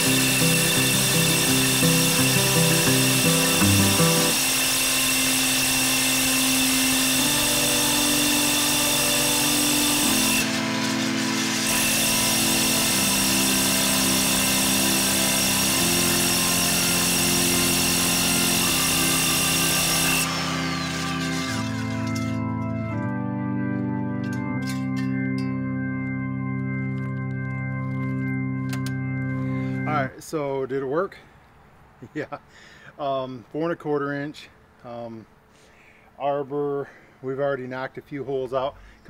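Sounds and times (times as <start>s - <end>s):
music with organ-like chords: 0.0s - 4.5s, 5.6s - 30.2s
rotary hammer drilling into brick: 0.0s - 22.4s.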